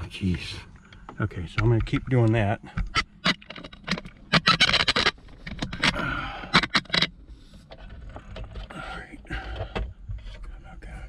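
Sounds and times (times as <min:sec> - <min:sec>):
cable scraping and rustling: 0:01.6 - 0:08.8.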